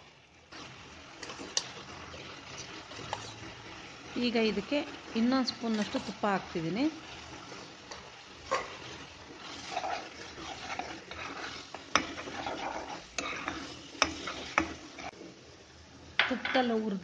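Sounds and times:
soft sizzle: 0:00.0 - 0:17.0
spatula stirring bubbling halwa: 0:00.1 - 0:16.5
spatula knocking pan: 0:07.9 - 0:15.1.

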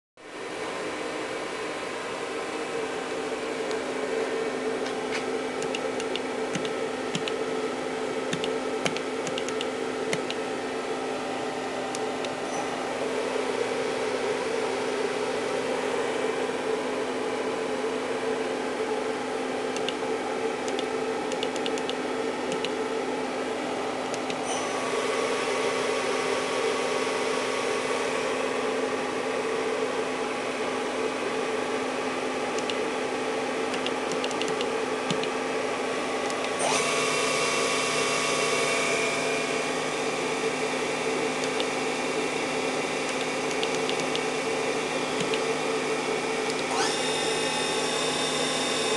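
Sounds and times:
milling machine spindle whine: 0:36.0 - 0:48.9.

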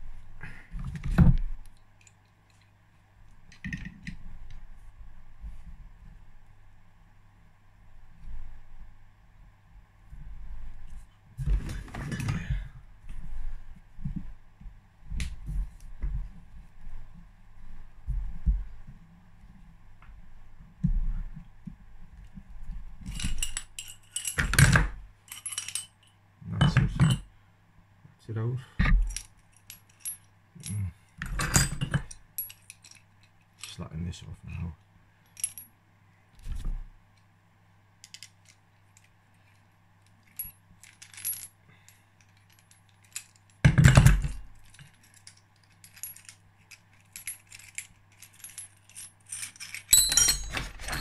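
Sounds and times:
metal tools clinking and knocking: 0:23.0 - 0:27.2, 0:40.3 - 0:51.0
steel tools clinking: 0:47.0 - 0:51.0.

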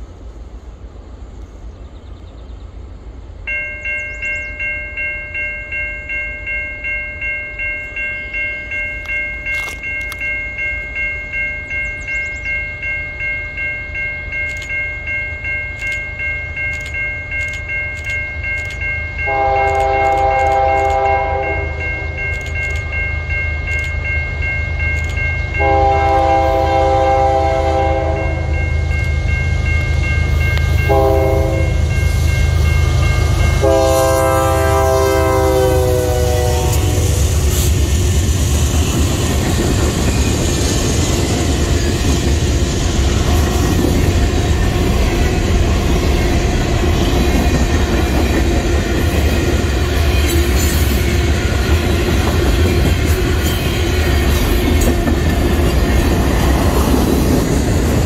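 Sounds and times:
locomotive horn: 0:19.2 - 0:22.2, 0:25.6 - 0:28.6, 0:30.7 - 0:31.9, 0:33.2 - 0:37.3.

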